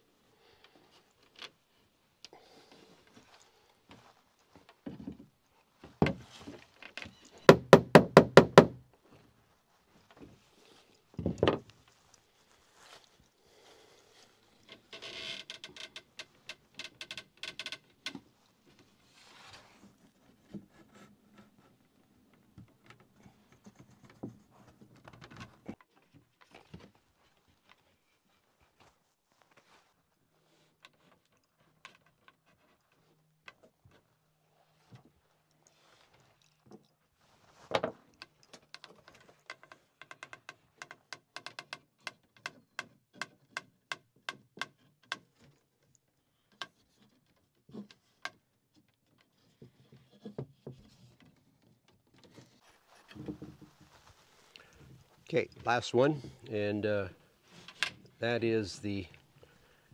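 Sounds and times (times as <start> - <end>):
hammer knocking on wood: 7.5 - 8.8
wood clicking and tapping: 37.7 - 45.5.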